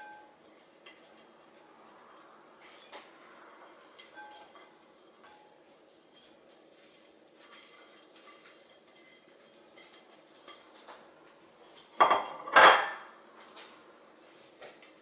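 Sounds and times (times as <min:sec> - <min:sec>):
ceramic plate clattering against glass: 0:12.0 - 0:13.1.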